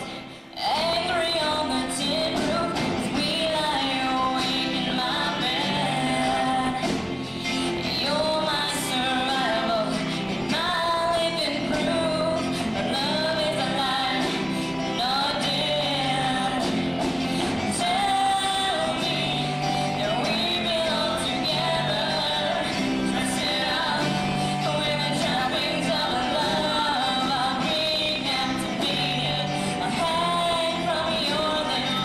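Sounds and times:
song with singing voice: 0.0 - 32.0.

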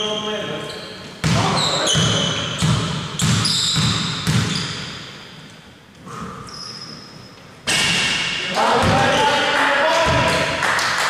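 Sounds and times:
basketball bouncing on hardwood: 1.2 - 4.6.

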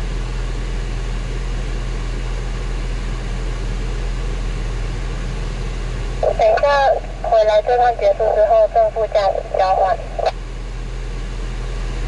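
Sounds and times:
car engine idling hum: 0.0 - 12.0.

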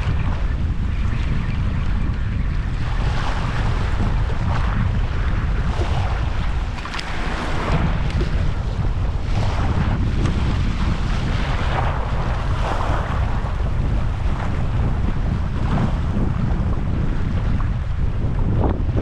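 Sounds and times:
wind buffeting microphone: 0.0 - 19.0
small waves washing: 2.6 - 16.5.

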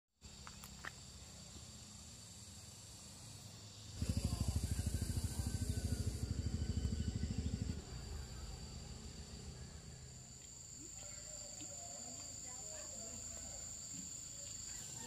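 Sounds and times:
insects droning: 0.2 - 15.0
loud rapid low throb: 4.0 - 9.8.

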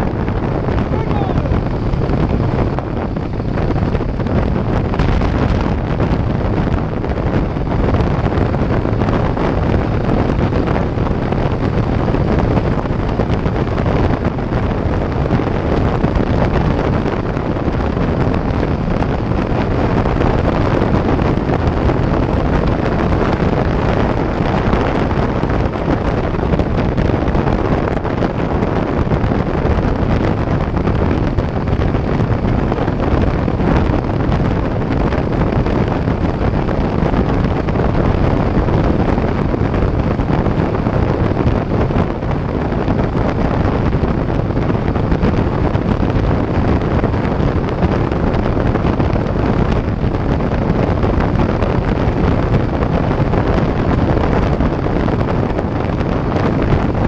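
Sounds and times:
wind buffeting microphone: 0.0 - 57.0.

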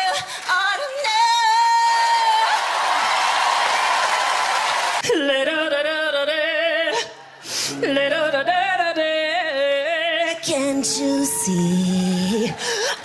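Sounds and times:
person singing with vibrato: 5.0 - 13.0.

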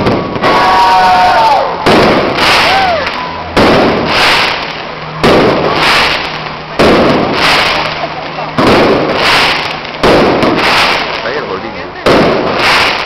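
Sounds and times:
fireworks bursting: 0.0 - 13.0
fizzing crackle: 4.0 - 11.4.

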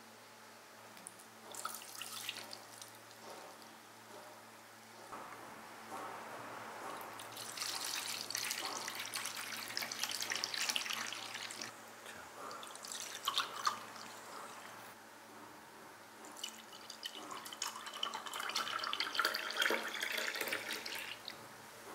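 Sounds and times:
liquid pouring and splashing: 1.5 - 3.2, 7.2 - 11.7, 12.5 - 14.3, 16.3 - 21.3.

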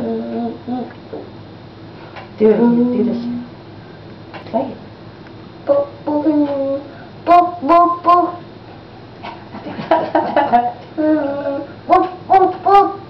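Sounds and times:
young child singing: 5.7 - 8.4.

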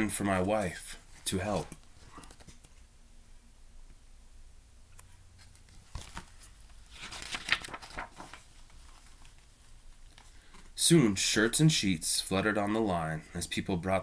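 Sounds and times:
book pages rustling and flapping: 0.5 - 2.8, 5.4 - 10.7.

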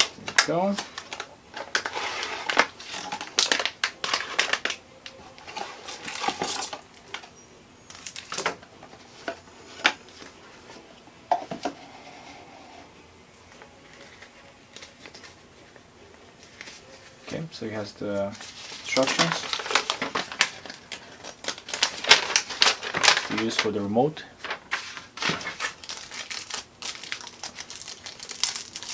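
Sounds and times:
cardboard packing crinkling: 0.0 - 7.3, 7.9 - 10.7, 18.2 - 23.8, 24.4 - 28.9.

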